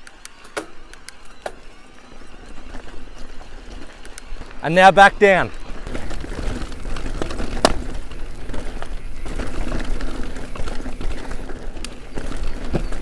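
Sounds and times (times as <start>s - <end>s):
bike tyres rumbling on gravel: 0.0s - 13.0s.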